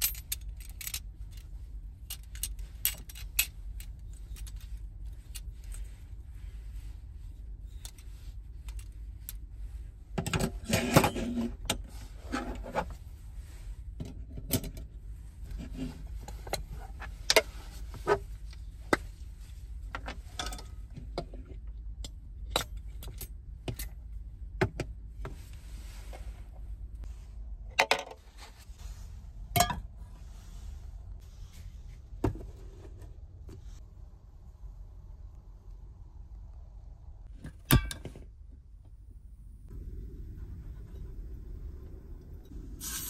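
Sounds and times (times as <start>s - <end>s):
metal clinking and rattling: 0.0s - 6.0s
low steady hum: 0.0s - 43.0s.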